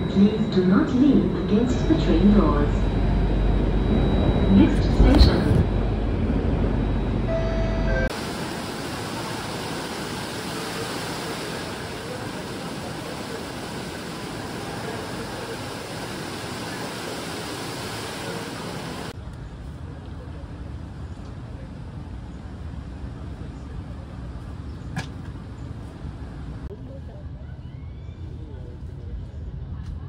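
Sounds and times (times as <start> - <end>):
metro train carriage rumbling: 0.0 - 30.0
indoor waterfall rushing: 8.1 - 19.2.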